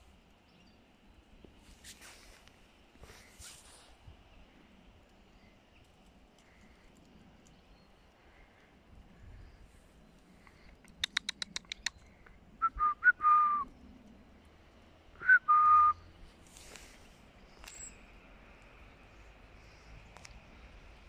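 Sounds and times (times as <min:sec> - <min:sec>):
person clicking tongue: 0:10.8 - 0:12.0
person whistling: 0:12.6 - 0:13.6, 0:15.2 - 0:16.0.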